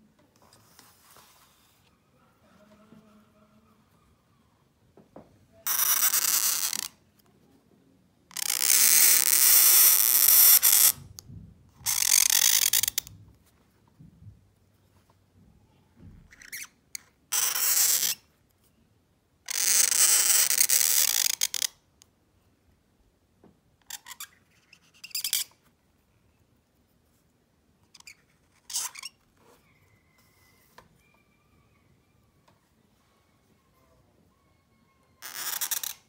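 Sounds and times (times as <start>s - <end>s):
pen nib scratching paper: 5.7s - 6.9s.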